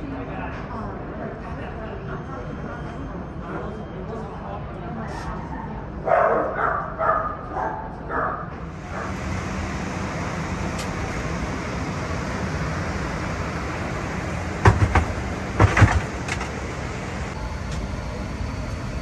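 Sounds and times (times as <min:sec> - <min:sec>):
vehicle rumble: 0:08.6 - 0:19.0
sharp knocks: 0:14.6 - 0:16.5.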